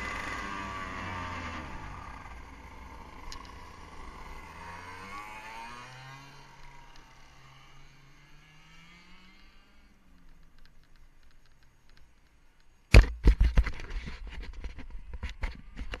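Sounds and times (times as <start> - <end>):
distant go-kart engine whine: 0.0 - 11.2
knocking and rumbling on microphone: 12.9 - 16.0.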